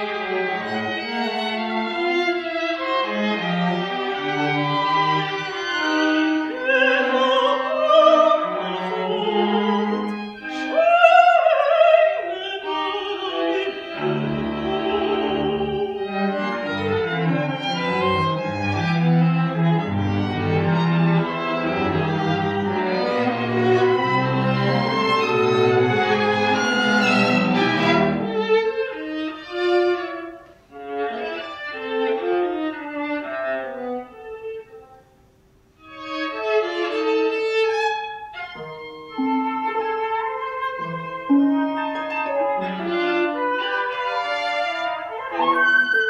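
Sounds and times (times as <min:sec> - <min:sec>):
cello and double bass low notes: 0:12.6 - 0:30.4.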